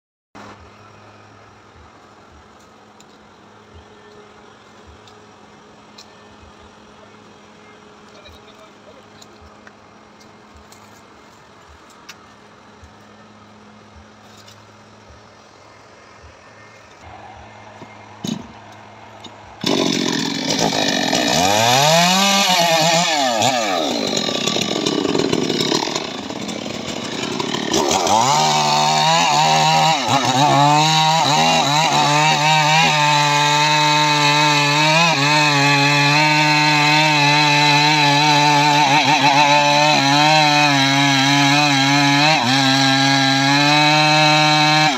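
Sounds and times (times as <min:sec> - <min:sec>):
chainsaw revving and cutting: 0:19.5 - 0:44.9.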